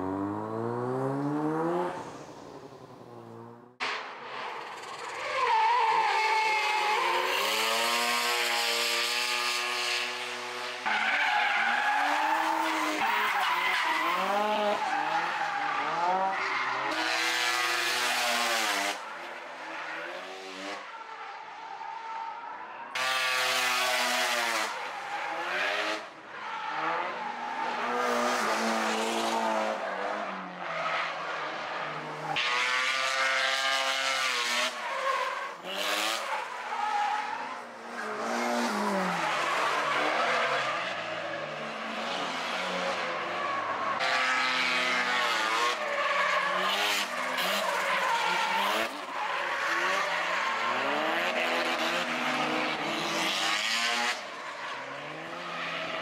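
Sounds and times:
rotary engine revving hard: 0.0 - 3.7, 6.8 - 10.6, 32.3 - 34.8, 44.0 - 54.3.

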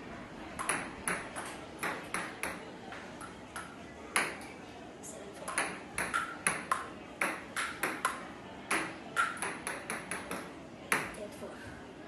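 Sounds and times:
table tennis ball clicking: 0.6 - 2.6, 5.5 - 11.2.

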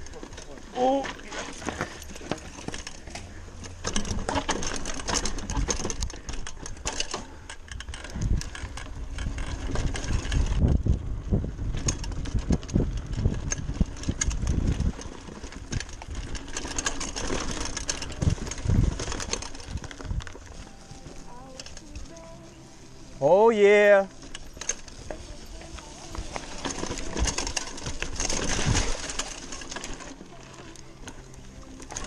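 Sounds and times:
mountain bike rattling: 0.0 - 32.0
wind on microphone: 8.1 - 16.4, 18.0 - 20.4.

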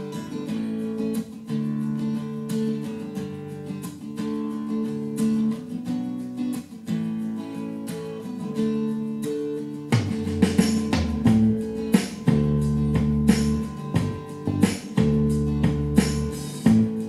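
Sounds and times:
acoustic guitar strumming chords: 0.0 - 17.0.

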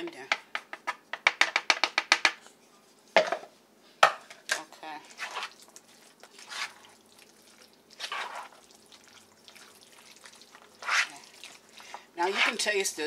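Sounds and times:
fork squishing food in bowl: 5.0 - 12.7.

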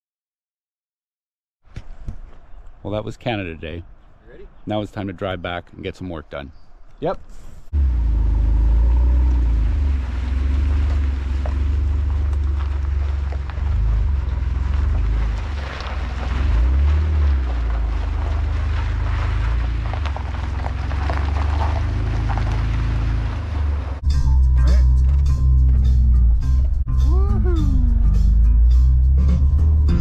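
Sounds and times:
car engine droning: 7.8 - 30.0
tyres crackling on pebbles: 9.9 - 23.8.

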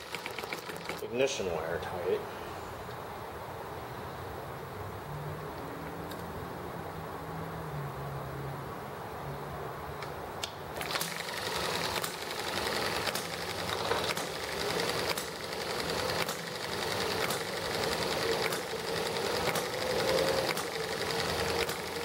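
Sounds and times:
pull cord starting engine: 0.0 - 1.1, 10.8 - 22.0
small engine clattering: 0.0 - 1.1, 10.8 - 22.0
engine firing stroke: 10.8 - 22.0.

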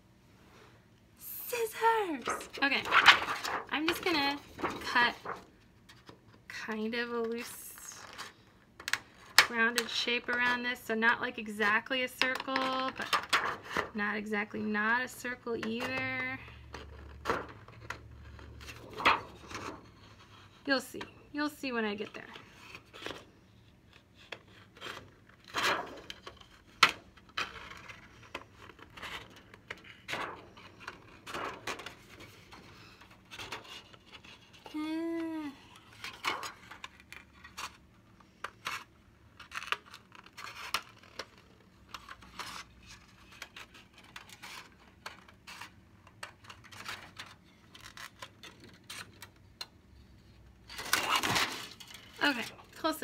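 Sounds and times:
stiff plastic rustling: 1.3 - 6.7, 21.9 - 53.0.

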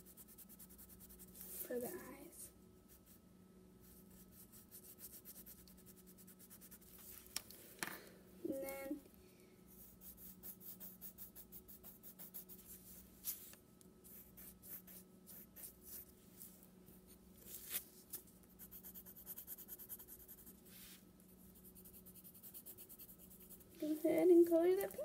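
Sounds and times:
colored pencil scratching on paper: 0.0 - 1.8, 3.8 - 7.0, 9.7 - 13.0, 14.1 - 16.1, 18.6 - 24.9
faint steady hum: 0.0 - 25.0.

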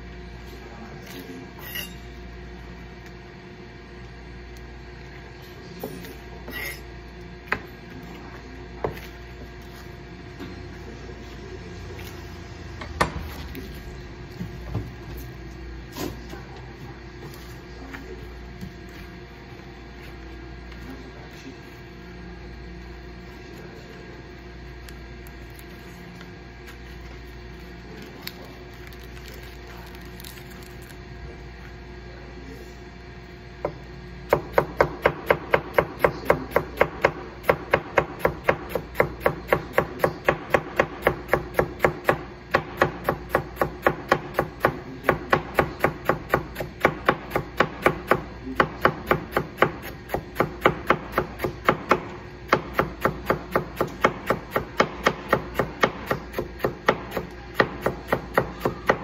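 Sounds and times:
knife chopping on cutting board: 33.6 - 59.0.

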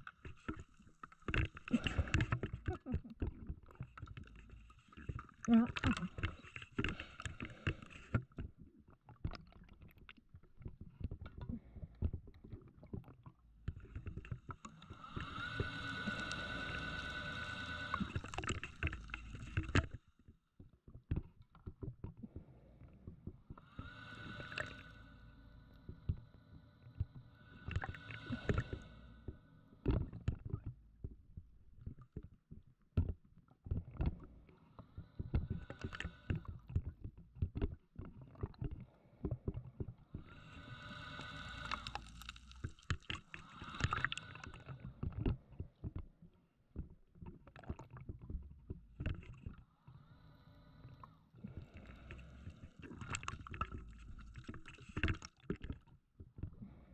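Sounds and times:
exhaled bubbles rumbling: 0.0 - 56.9
regulator hissing inhalation: 14.7 - 19.9, 23.7 - 26.4, 27.2 - 29.4, 40.3 - 44.7.

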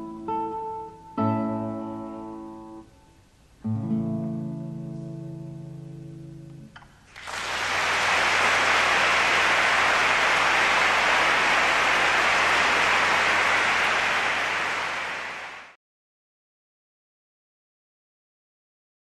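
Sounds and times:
guitar notes: 0.0 - 6.9.

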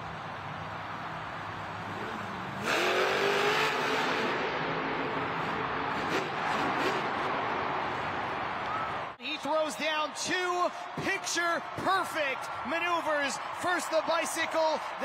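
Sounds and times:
truck engine revving: 1.8 - 8.2.

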